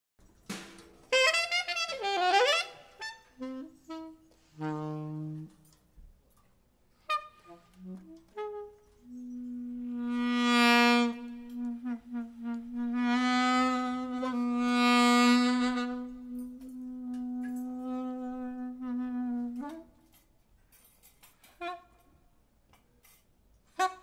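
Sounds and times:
saxophone playing free jazz: 1.1 - 5.9, 7.0 - 20.3, 21.5 - 22.2, 23.7 - 24.0.

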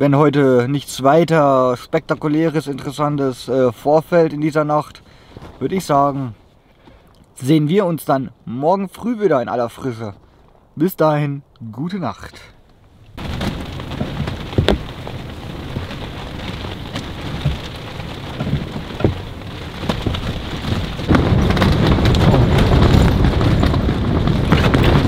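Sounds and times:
rain hitting tent: 1.0 - 6.4, 12.9 - 25.0
storm wind: 12.9 - 25.0
sharp knocks: 13.2 - 16.0
tent fabric rustling and rattling: 13.2 - 25.0.

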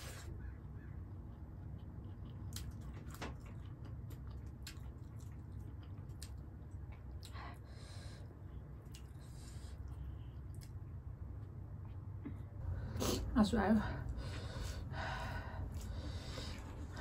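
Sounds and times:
steady low hum: 0.0 - 17.0
chewing with mouth closed: 0.7 - 7.6, 8.6 - 12.1.

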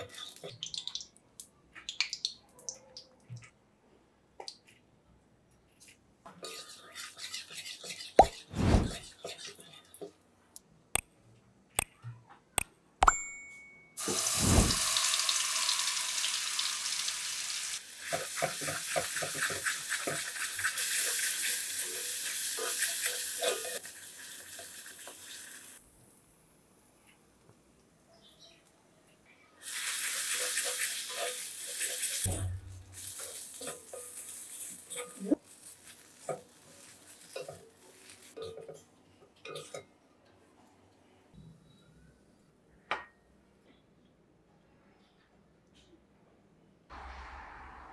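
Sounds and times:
metal spatula scraping a pan: 6.4 - 9.9, 18.1 - 23.9, 30.0 - 38.8
oil sizzling: 14.0 - 25.9, 29.6 - 38.8.

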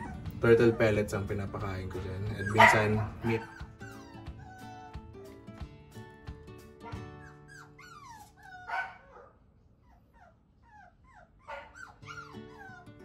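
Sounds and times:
dog whining and yelping: 0.0 - 1.1, 1.9 - 5.1, 6.8 - 13.0
soft background music: 0.0 - 8.3
dog barking: 2.4 - 3.7, 8.7 - 9.4, 11.4 - 12.2.

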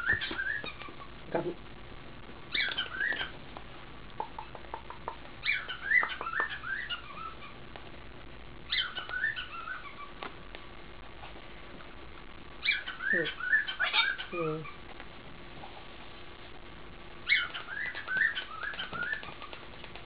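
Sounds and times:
cockatoo chattering: 4.2 - 7.6, 12.6 - 14.8, 17.3 - 19.7.

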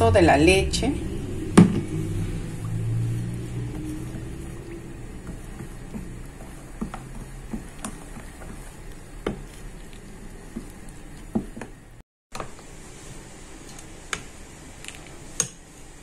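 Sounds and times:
spoon stirring batter in bowl: 1.4 - 11.8.

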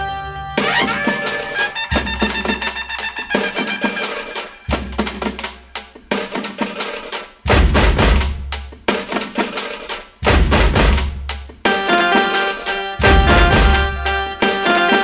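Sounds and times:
music with drums and percussion: 0.6 - 15.0.

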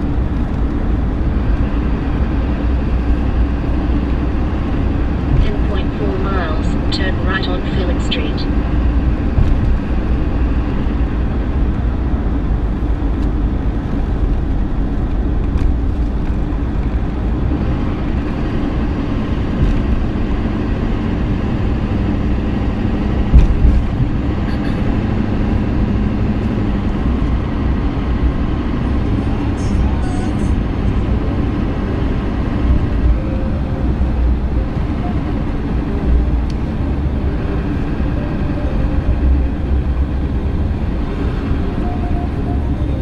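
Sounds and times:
car cabin road and engine rumble: 0.0 - 43.0
short thump: 23.3 - 24.7.

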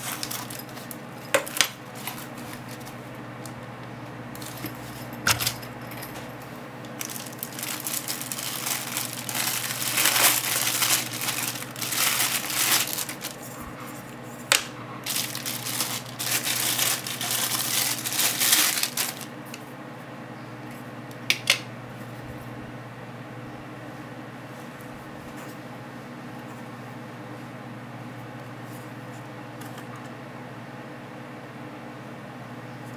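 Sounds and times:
plastic bag crinkling: 0.0 - 3.0, 4.4 - 6.1, 6.8 - 13.6, 15.0 - 19.4.

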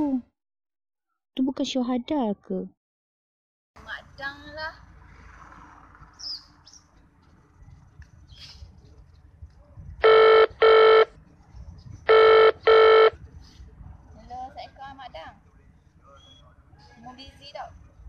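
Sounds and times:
buzzy telephone ringback tone: 10.0 - 11.1, 12.1 - 13.2.

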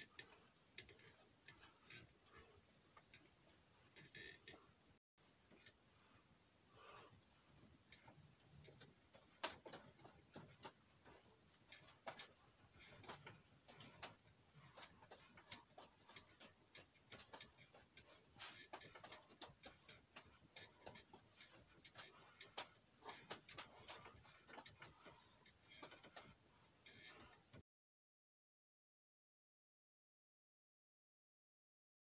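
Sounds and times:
faint clicks and crackles: 0.0 - 4.8, 5.4 - 27.6.

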